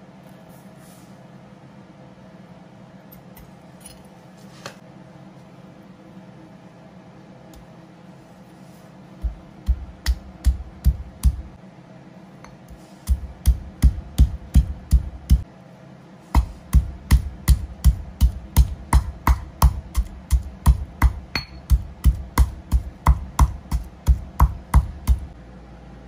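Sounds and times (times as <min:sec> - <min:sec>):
stone pestle pounding in mortar: 0:09.2 - 0:11.5, 0:12.5 - 0:15.4, 0:16.3 - 0:25.3.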